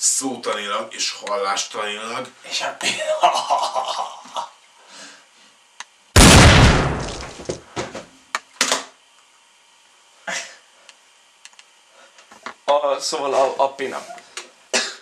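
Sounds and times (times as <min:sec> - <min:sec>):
pistol shot: 0:06.2 - 0:07.4.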